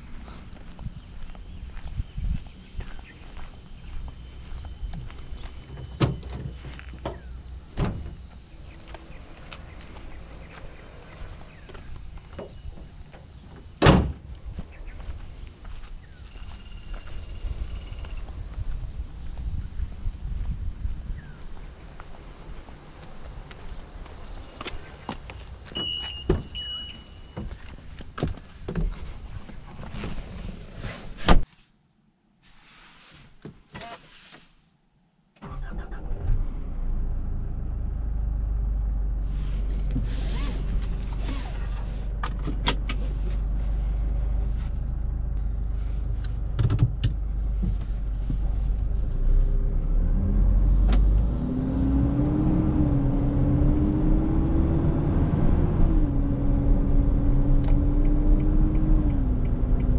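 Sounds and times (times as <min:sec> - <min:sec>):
car door shutting with thump: 0:13.8 - 0:14.2
short beep: 0:25.8 - 0:27.4
pickup driving off: 0:47.2 - 0:59.9.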